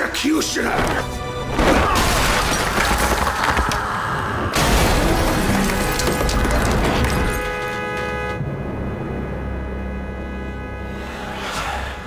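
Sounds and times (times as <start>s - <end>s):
plaster breaking: 1.6s - 3.9s, 4.6s - 7.8s
glass shattering: 1.8s - 3.6s, 4.6s - 7.8s
dramatic score music: 8.4s - 12.0s.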